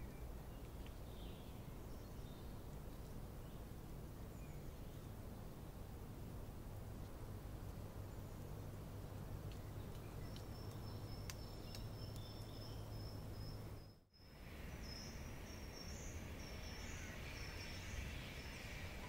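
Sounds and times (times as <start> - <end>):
low hiss: 0.0 - 19.0
light ticks: 9.2 - 12.6.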